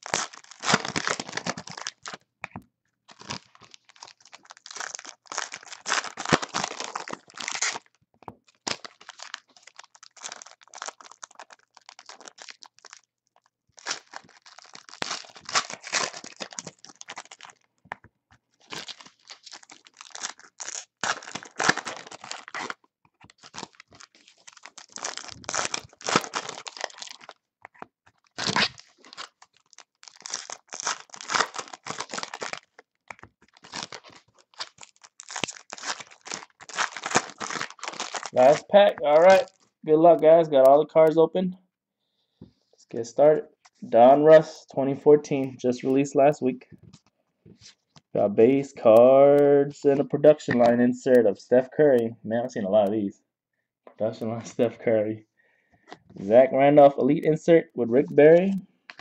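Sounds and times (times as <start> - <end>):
foil wrappers tearing and crinkling: 0.0 - 2.2, 3.1 - 13.1, 13.7 - 17.7, 18.6 - 39.7.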